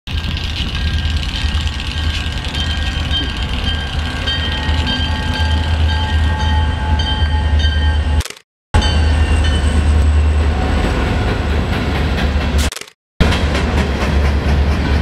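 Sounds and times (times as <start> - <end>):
diesel locomotive engine rumble: 0.1 - 8.2, 8.8 - 15.0.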